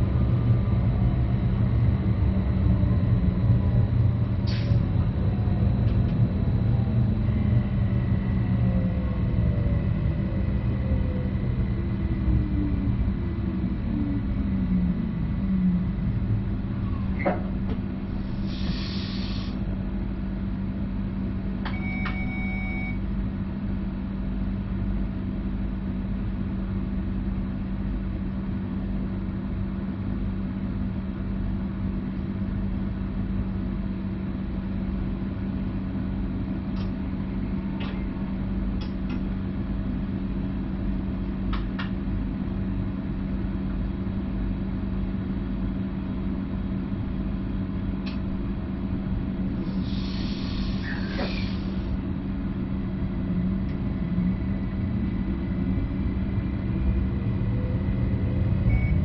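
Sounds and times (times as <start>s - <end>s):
train rumble and hum: 0.0s - 59.0s
short air hiss: 18.4s - 19.6s, 49.7s - 51.8s
brief tone: 21.6s - 23.1s, 58.6s - 59.0s.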